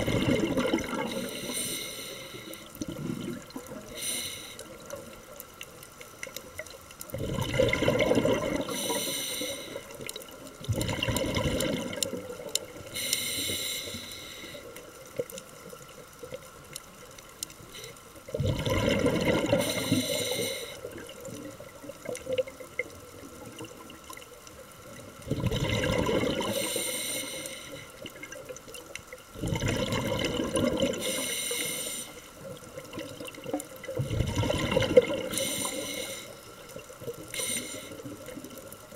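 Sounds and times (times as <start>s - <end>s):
exhaled air bubbling: 0.0s - 38.9s
regulator inhale hiss: 1.0s - 2.9s, 3.8s - 5.2s, 8.6s - 10.1s, 12.8s - 15.0s, 17.6s - 18.2s, 19.5s - 21.0s, 26.4s - 28.0s, 31.0s - 32.4s, 35.2s - 38.3s.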